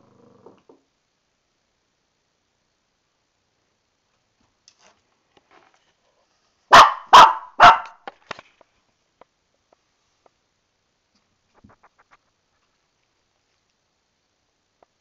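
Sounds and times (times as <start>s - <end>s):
puppy barking: 6.7s - 8.0s.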